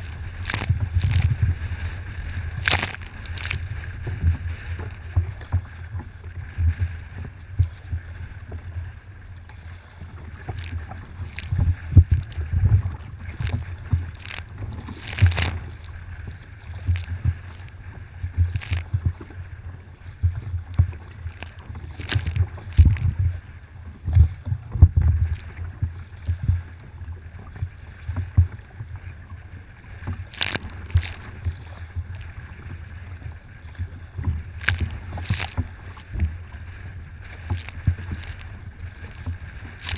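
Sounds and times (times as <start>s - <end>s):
wind buffeting microphone: 0.0s - 27.6s
paddle splashing water: 0.0s - 39.9s.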